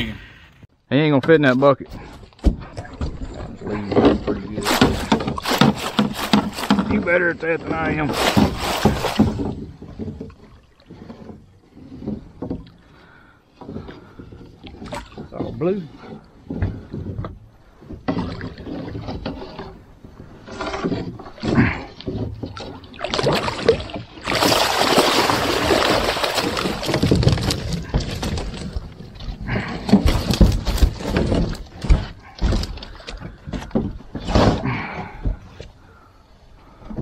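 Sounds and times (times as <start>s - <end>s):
net and fish thumping on boat hull: 4.0s - 10.5s, 21.3s - 35.4s
water splashing and pouring: 4.4s - 7.2s, 7.9s - 11.2s, 21.2s - 31.6s.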